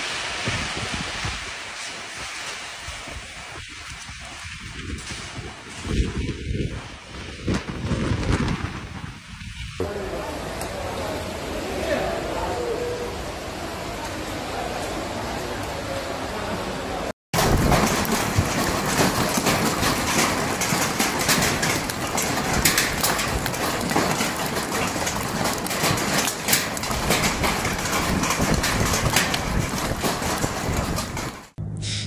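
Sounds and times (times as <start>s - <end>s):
hail and heavy rain pelting: 0.0s - 11.8s, 17.3s - 31.6s
hailstones clicking: 17.4s - 31.6s.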